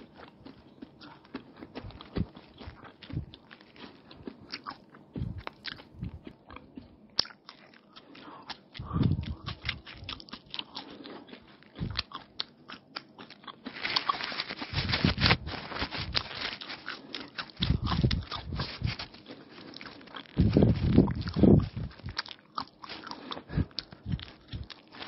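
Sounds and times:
chewing and crunching: 0.0s - 25.0s
paper wrapper crinkling: 13.6s - 25.0s.

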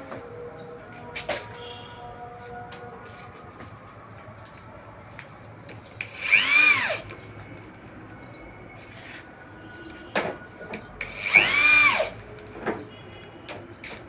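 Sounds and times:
electric drill driving screws: 6.0s - 7.0s, 11.0s - 12.2s.

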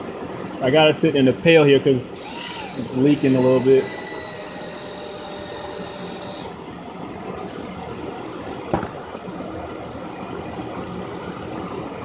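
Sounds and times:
mechanical hum: 0.0s - 12.0s
drill whining: 2.1s - 6.6s.

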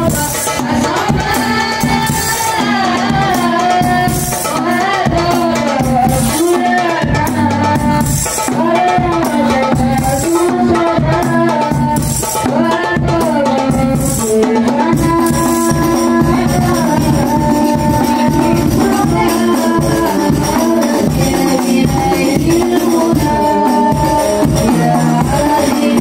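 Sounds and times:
hand-struck frame drums: 0.0s - 26.0s
men singing into microphones: 0.0s - 26.0s
bass drum: 14.8s - 26.0s.

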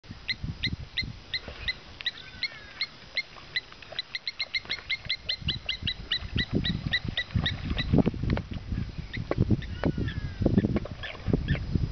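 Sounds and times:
low bumps and rustling: 5.5s - 11.9s.

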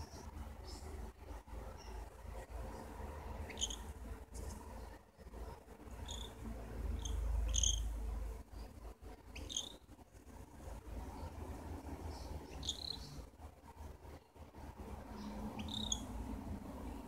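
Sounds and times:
cockatiel chirping: 3.4s - 3.9s, 6.0s - 6.4s, 7.0s - 7.9s, 9.3s - 9.8s, 12.5s - 13.2s, 15.6s - 16.1s.

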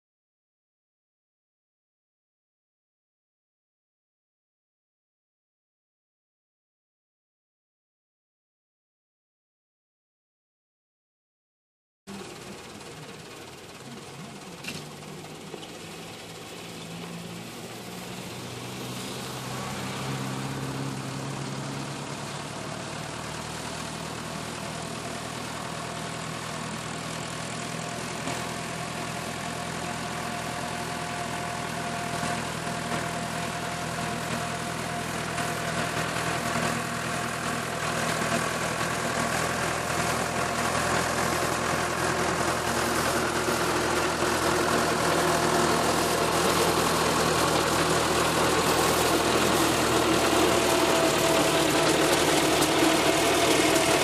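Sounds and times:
tractor engine running: 12.1s - 54.0s.

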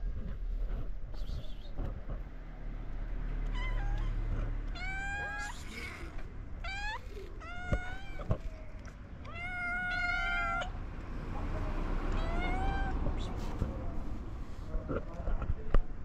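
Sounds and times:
cats meowing: 3.4s - 10.8s, 12.1s - 13.4s.

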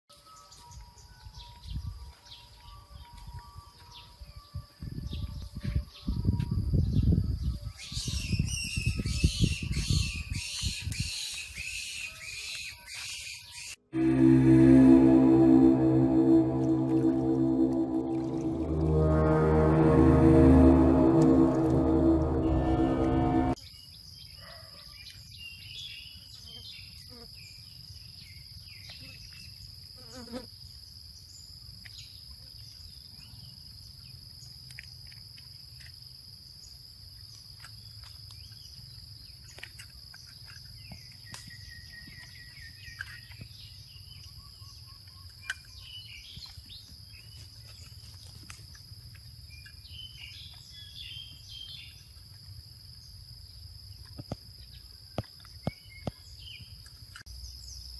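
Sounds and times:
low rumble: 14.0s - 23.6s.

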